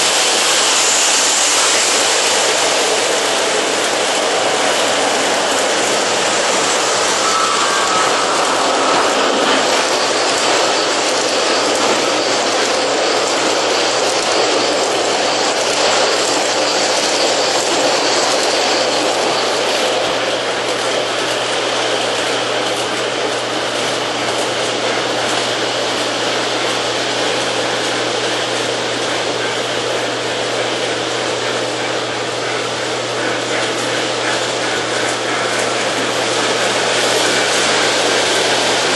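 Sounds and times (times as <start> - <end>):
model train wheels rumbling: 0.0 - 38.9
steady low hum: 2.6 - 13.7.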